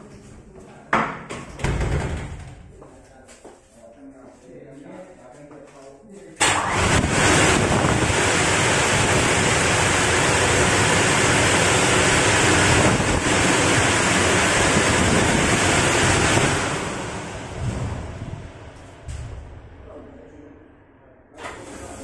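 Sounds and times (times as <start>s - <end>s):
air shower blowing: 21.4s - 22.0s.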